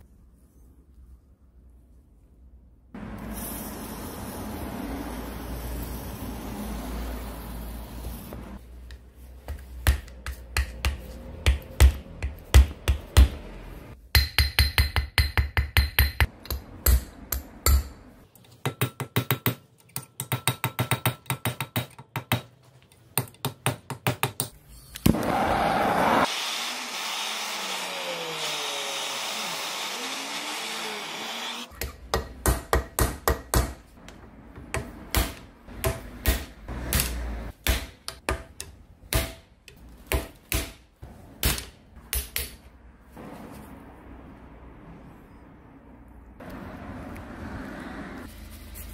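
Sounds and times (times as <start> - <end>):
hammer striking chisel on metal: 14.1 - 22.5, 31.8 - 33.8, 41.4 - 42.7.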